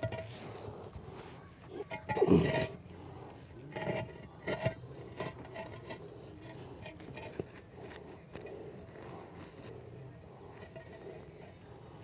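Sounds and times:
concrete block scraping and knocking: 0.0s - 0.7s, 3.7s - 8.0s.

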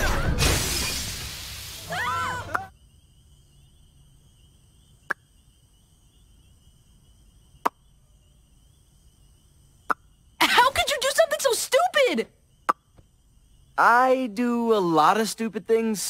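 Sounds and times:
crash noise: 0.0s - 2.0s
faint cricket chirring: 0.0s - 16.0s.

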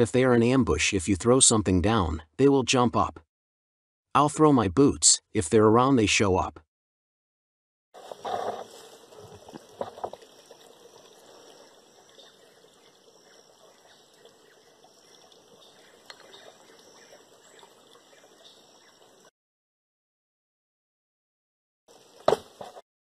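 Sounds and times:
leather boot and clothing rustling: 8.0s - 10.3s
forest background: 8.0s - 19.3s, 21.9s - 22.8s
boot knocking: 22.2s - 22.8s.

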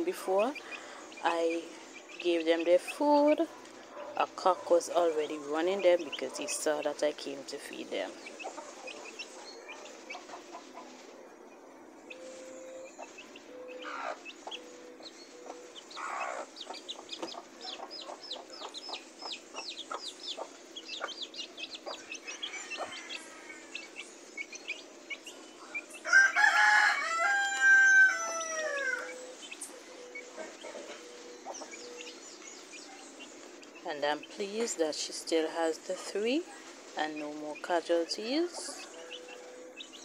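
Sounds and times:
chicks peeping: 0.0s - 40.0s
rooster crowing: 21.9s - 24.0s, 26.0s - 29.3s.

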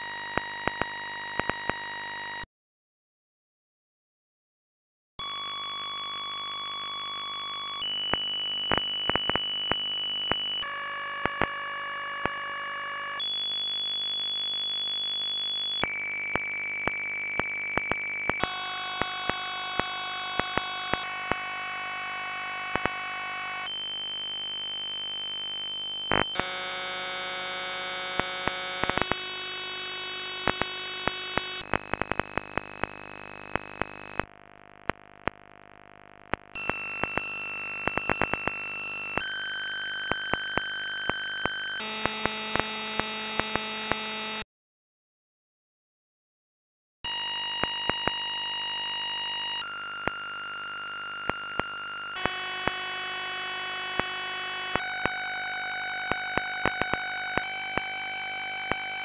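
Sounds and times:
harsh buzzy beeper tones: 5.2s - 34.3s, 36.5s - 44.4s, 47.1s - 59.0s
sharp clicks: 8.1s - 10.5s, 16.4s - 21.5s, 22.7s - 23.0s, 28.2s - 29.2s, 30.4s - 34.0s.

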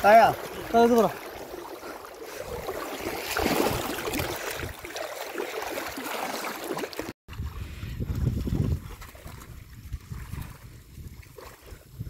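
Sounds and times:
footsteps wading in water: 0.0s - 12.0s
water sloshing and splashing: 0.0s - 12.0s
wind rumble on microphone: 7.3s - 12.0s.

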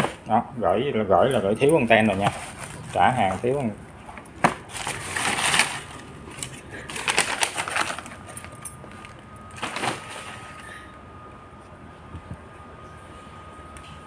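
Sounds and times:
cardboard and bubble wrap rustling: 1.6s - 10.8s.

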